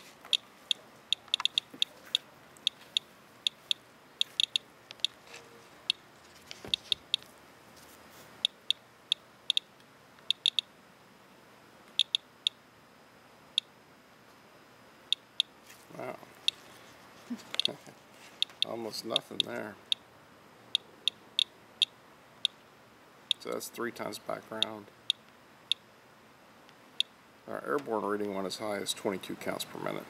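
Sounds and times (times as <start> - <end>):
geiger counter clicking: 0.3 - 5.2, 6.7 - 7.2, 8.4 - 10.7, 11.9 - 12.6.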